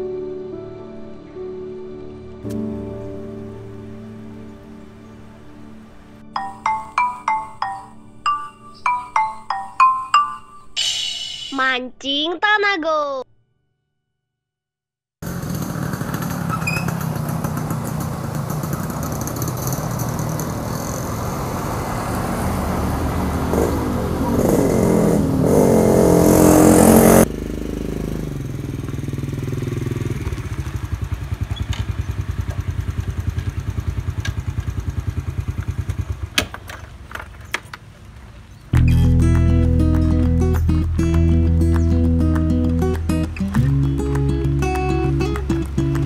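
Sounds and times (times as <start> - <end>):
motorcycle engine revving: 15.2 - 36.9
small motorcycle engine idling: 15.2 - 37.6.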